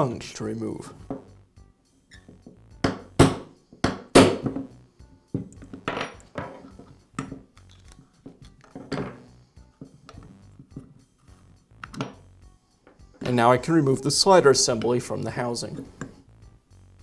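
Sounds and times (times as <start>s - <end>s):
hammer striking metal punch: 2.8s - 4.6s
tools set down on bench: 5.3s - 7.4s, 8.2s - 10.0s.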